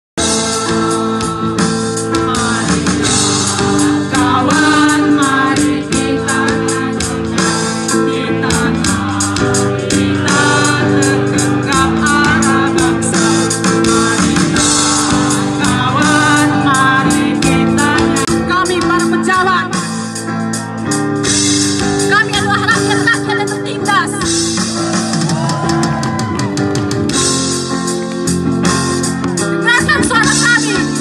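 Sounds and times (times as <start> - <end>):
person singing slow song: 0.2 - 19.3
guitar accompaniment: 0.2 - 31.0.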